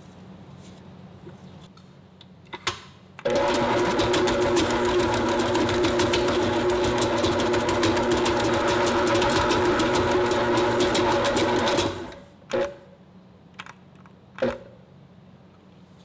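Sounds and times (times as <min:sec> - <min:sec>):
stand mixer kneading dough: 0:03.3 - 0:12.2.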